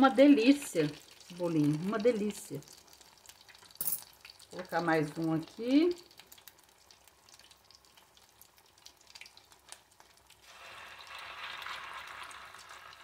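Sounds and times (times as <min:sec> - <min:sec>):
batter sizzling in oil: 0:00.0 - 0:13.0
food frying in oil: 0:00.0 - 0:13.0.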